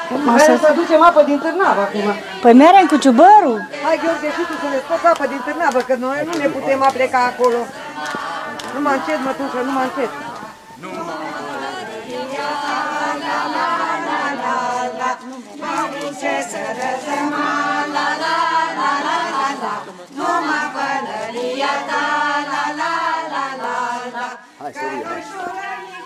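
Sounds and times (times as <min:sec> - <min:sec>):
group singing unaccompanied: 0:00.0 - 0:26.0.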